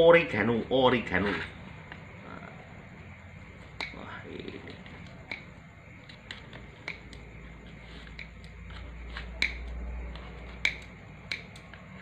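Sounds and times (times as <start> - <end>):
scissors snipping pizza crust: 4.6 - 12.0.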